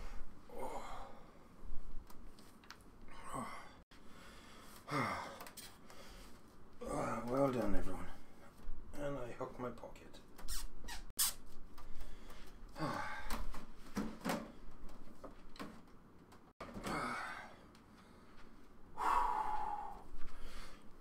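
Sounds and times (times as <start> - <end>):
man breathing hard and gasping: 3.1 - 6.4, 11.9 - 13.6, 16.8 - 21.0.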